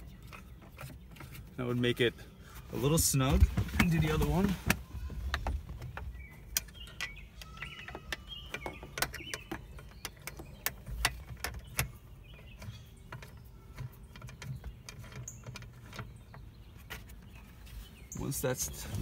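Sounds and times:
birds chirping: 0.0 - 19.0
nut threading clicks: 4.7 - 17.2.

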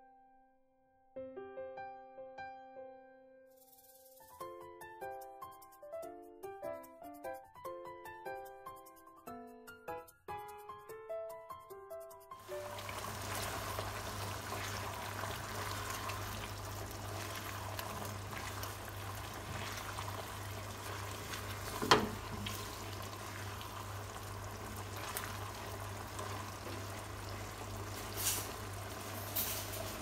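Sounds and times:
sauce simmering: 12.4 - 30.0
spatula stirring in a wok: 13.2 - 26.3
spatula knocking against pan: 21.7 - 22.4.

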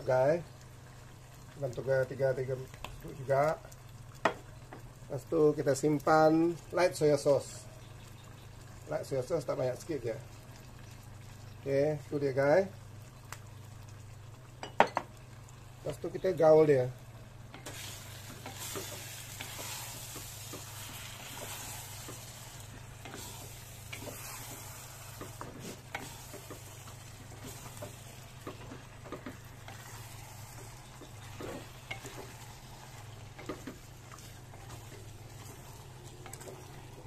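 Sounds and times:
low steady hum: 0.0 - 37.0
meat sizzling in a clay pot: 0.0 - 37.0
wooden spatula scraping: 17.6 - 37.0.

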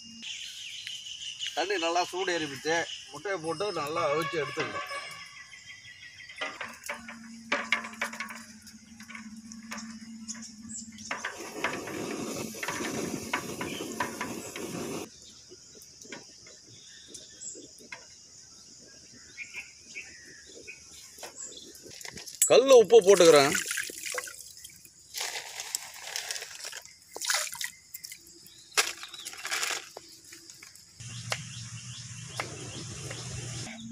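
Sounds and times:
insects buzzing: 0.0 - 33.9
water sloshing in pot: 21.8 - 28.3.

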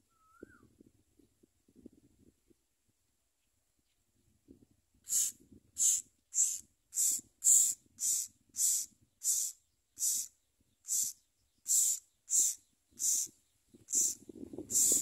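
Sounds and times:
nestling birds begging calls: 5.1 - 15.0.

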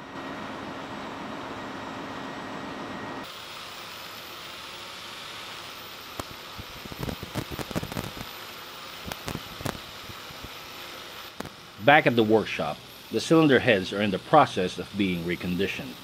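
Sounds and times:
pneumatic wire brush whining: 3.2 - 16.0
sharp clicks and scrapes: 6.2 - 8.3, 9.0 - 9.8.

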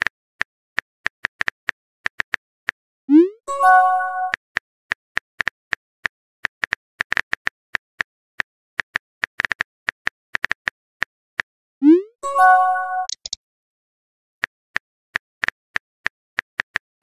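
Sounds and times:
phone keyboard typing taps: 13.1 - 13.4.

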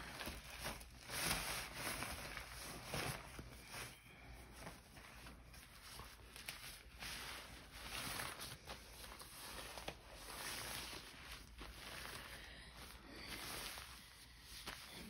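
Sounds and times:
plastic pants crinkling rustle: 0.0 - 15.0.

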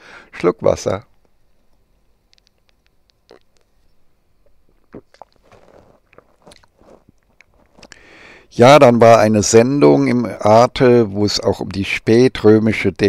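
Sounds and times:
mouth clicks: 2.2 - 8.1
sipping and swallowing: 2.4 - 3.8, 4.4 - 8.0.

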